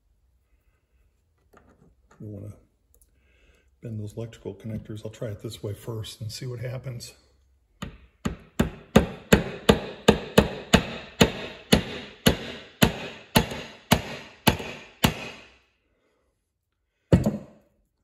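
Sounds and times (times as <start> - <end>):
hammer tapping metal: 7.8 - 15.5.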